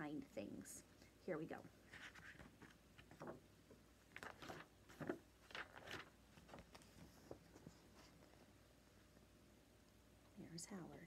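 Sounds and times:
paper pages rustling: 1.8 - 8.5.

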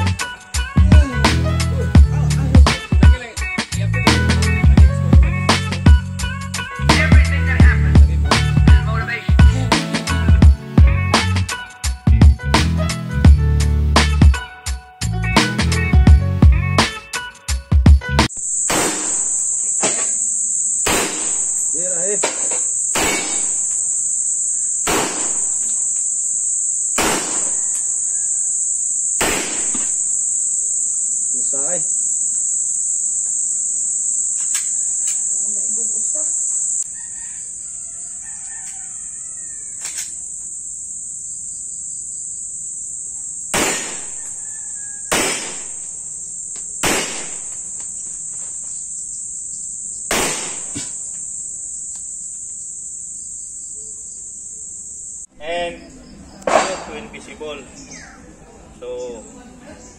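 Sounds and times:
insects droning: 0.0 - 59.9
pistol shots: 18.5 - 20.2, 20.8 - 23.9, 24.8 - 25.9, 27.0 - 28.0, 29.2 - 30.1, 43.5 - 44.2, 45.1 - 45.9, 46.8 - 47.7, 50.1 - 51.0, 56.4 - 57.0
rooster crowing: 27.3 - 28.8, 33.4 - 40.7, 43.9 - 46.1.

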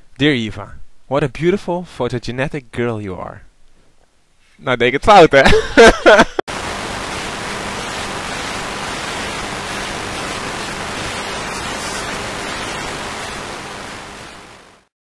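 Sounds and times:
static hiss: 6.5 - 15.0.

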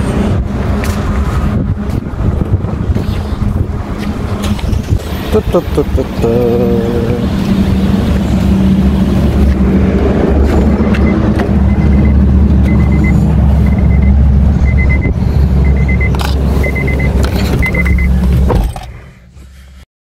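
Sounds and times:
wind rumbling on microphone: 0.0 - 18.8
car warning chime beeps: 10.8 - 18.2.

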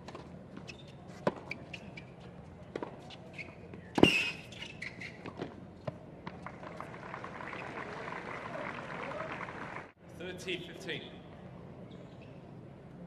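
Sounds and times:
tennis ball bouncing: 0.0 - 2.1, 2.7 - 6.9.

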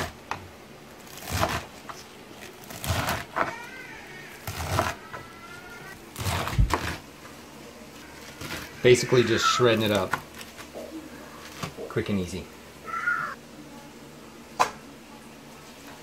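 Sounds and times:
knife slicing leafy greens: 1.0 - 3.6, 4.3 - 5.0, 6.2 - 7.0.

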